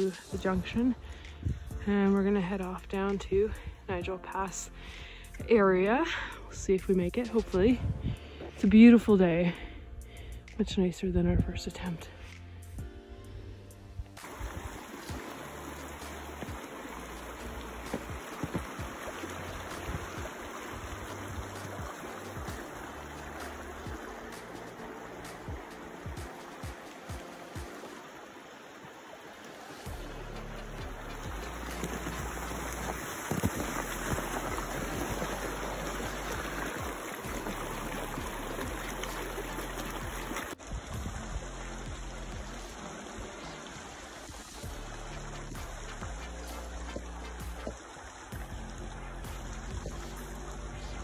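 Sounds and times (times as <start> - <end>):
creek flowing over rocks: 14.1 - 51.0.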